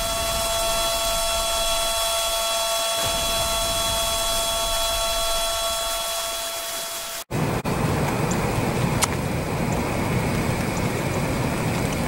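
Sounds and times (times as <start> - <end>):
warning siren steady tone: 0.0 - 7.3
rain falling: 0.0 - 12.0.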